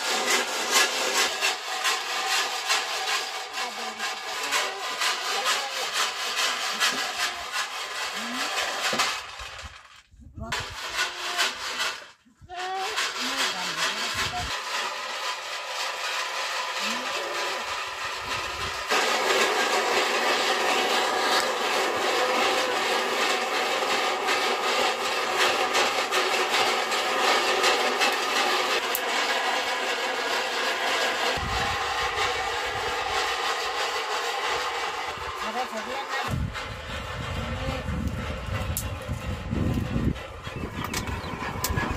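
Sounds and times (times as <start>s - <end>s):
metal scraper scraping pan: 0.0s - 9.2s, 16.6s - 31.6s, 39.5s - 41.9s
kernels rattling and crackling in pan: 0.0s - 37.3s.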